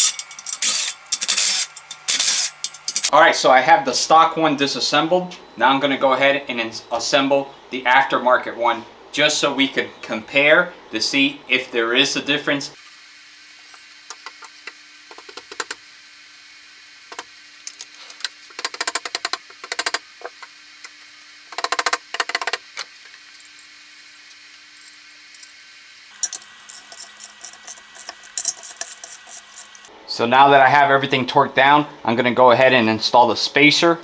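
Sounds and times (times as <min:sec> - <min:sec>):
hand ratchet clicking: 0:00.0 - 0:03.1, 0:18.5 - 0:20.0, 0:21.5 - 0:22.6, 0:26.1 - 0:29.9.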